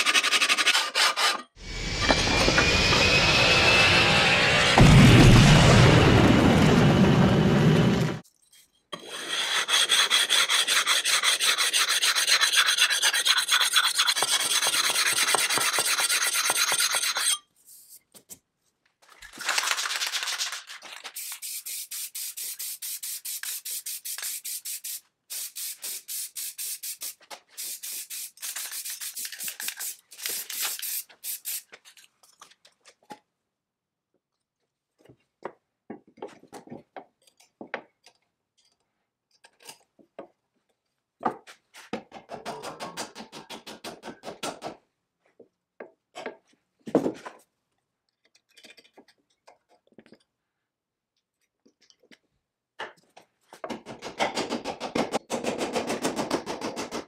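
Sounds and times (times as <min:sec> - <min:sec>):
aerosol spray hissing bursts: 0:21.2 - 0:29.2.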